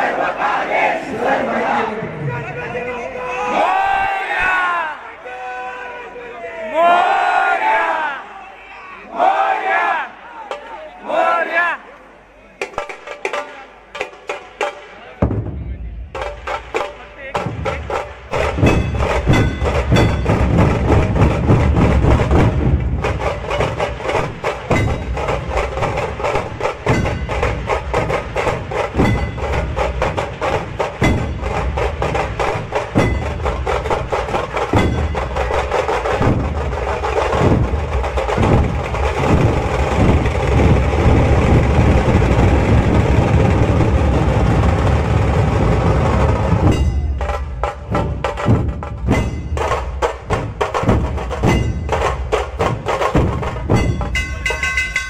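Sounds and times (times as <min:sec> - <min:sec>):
drums playing folk rhythm: 0:10.4 - 0:10.8, 0:12.5 - 0:55.0
metal jingles: 0:53.7 - 0:55.0.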